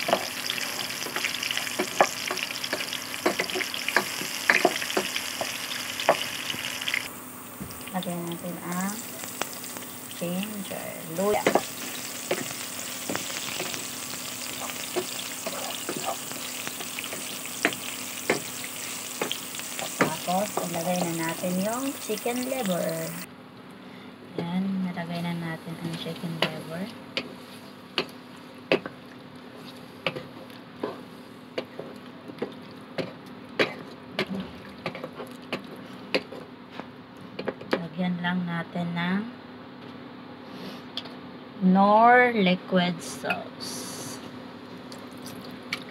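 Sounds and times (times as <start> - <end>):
food sizzling in hot oil: 0.0 - 23.3
wooden spatula knocking on pan: 19.2 - 21.2.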